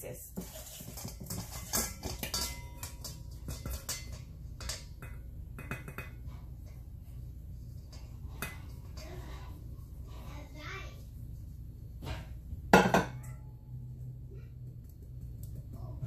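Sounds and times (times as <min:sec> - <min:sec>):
metal bowls and sieve clinking: 0:00.0 - 0:10.5, 0:12.0 - 0:13.6.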